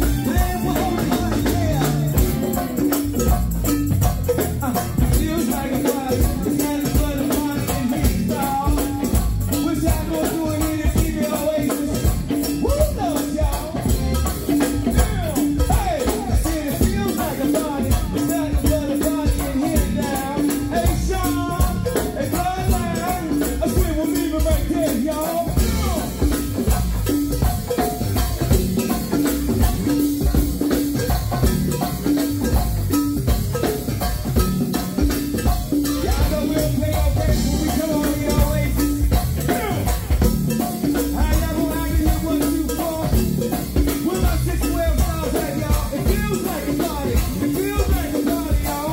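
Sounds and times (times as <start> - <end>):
person singing: 0.0 - 2.8, 4.5 - 26.5, 36.0 - 40.2, 41.0 - 48.9
live band playing: 0.0 - 48.9
shaken tambourine rhythm: 0.0 - 48.9.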